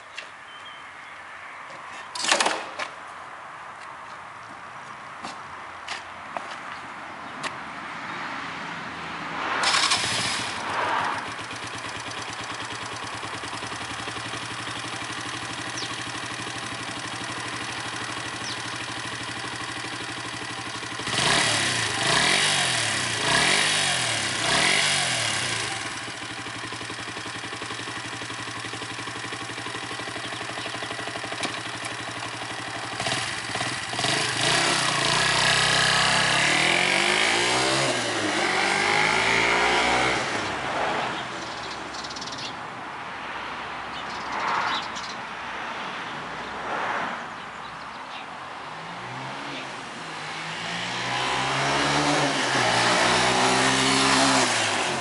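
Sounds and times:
motorcycle engine starting and revving: 9.6 - 42.5, 49.1 - 55.0.

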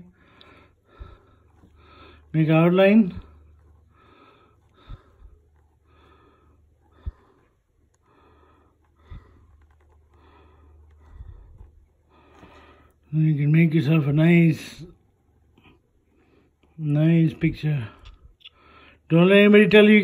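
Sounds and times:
person breathing close to microphone: 0.0 - 13.2
steady low hum: 0.0 - 20.0.

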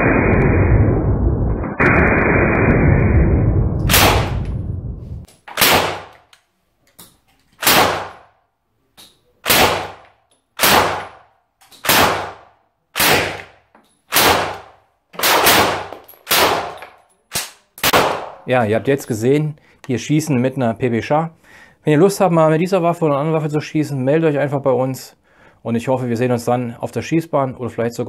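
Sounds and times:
gunshots with ringing echo: 3.9 - 4.5, 5.6 - 6.1, 7.6 - 8.3, 9.4 - 10.0, 10.6 - 11.2, 11.8 - 12.4, 14.1 - 16.8, 17.8 - 18.5.

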